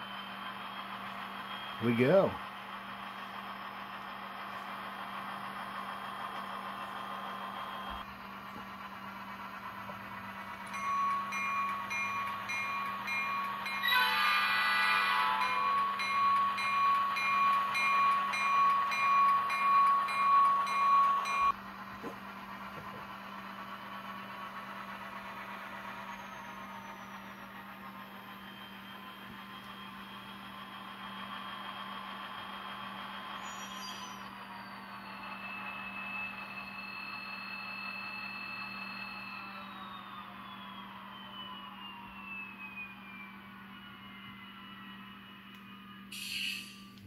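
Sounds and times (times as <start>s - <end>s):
diesel engine sound: 0.0s - 47.0s
bell ringing: 10.7s - 21.5s
locomotive horn from small speaker: 13.9s - 15.5s.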